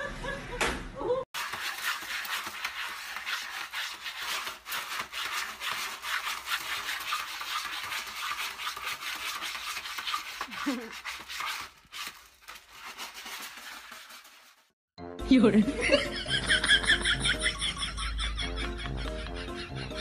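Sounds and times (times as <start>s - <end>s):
cat scratching litter: 1.4s - 14.7s.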